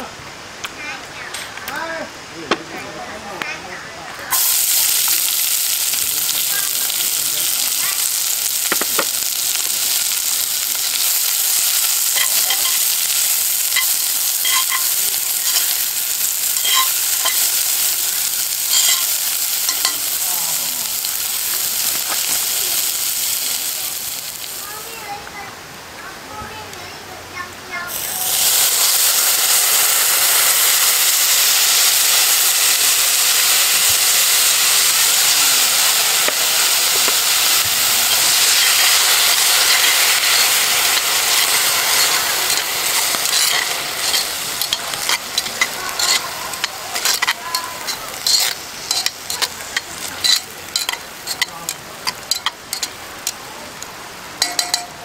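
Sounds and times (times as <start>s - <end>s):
food sizzling in a pot: 3.2s - 55.0s
metal spatula scraping a pot: 16.6s - 17.5s, 39.5s - 51.5s.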